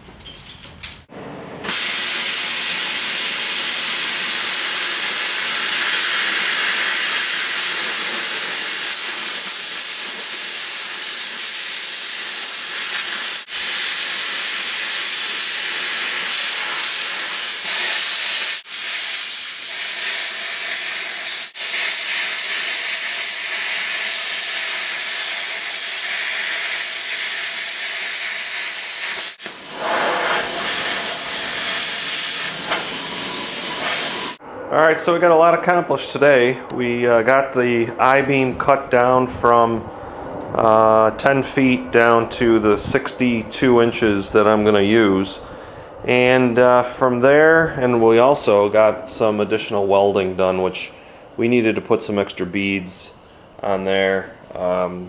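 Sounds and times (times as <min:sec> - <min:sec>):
plasma cutter hissing: 0:01.6 - 0:34.4.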